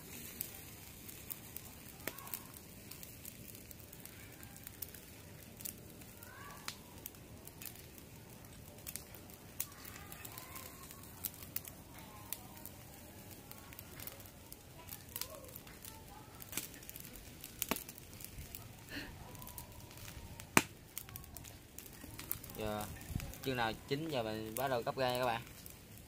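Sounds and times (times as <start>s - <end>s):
meat crackling on charcoal grill: 0.0s - 26.0s.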